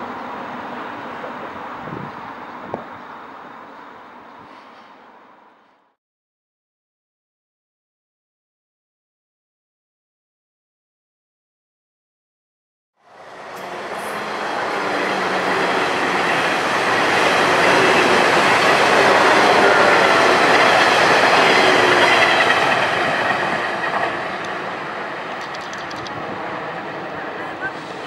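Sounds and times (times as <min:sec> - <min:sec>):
electric train passing: 0:00.0 - 0:05.9, 0:13.0 - 0:28.0.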